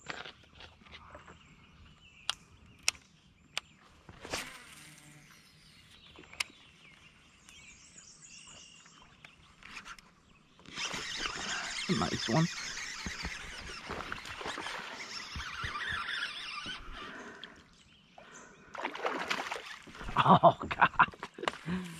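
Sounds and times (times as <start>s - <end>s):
birds chirping: 0.0s - 21.9s
faint insect buzzing: 4.2s - 5.9s.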